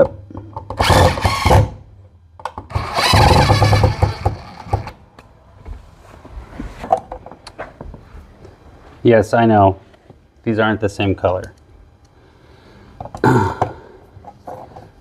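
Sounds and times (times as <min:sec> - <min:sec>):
power driver spinning screws: 0:02.7 - 0:04.9.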